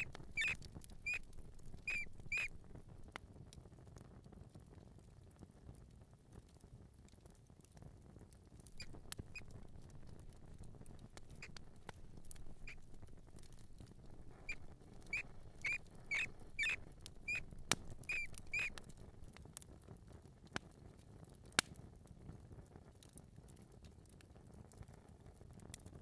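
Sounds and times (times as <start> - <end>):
mouse squeaking: 0.0 - 2.6, 8.7 - 19.2
faint clicks: 0.0 - 3.2, 8.6 - 19.5.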